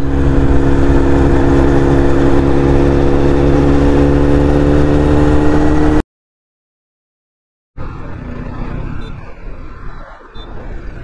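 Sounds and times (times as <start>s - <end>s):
motorcycle engine cruising: 0.0s - 6.0s
wind noise on microphone: 7.8s - 11.0s.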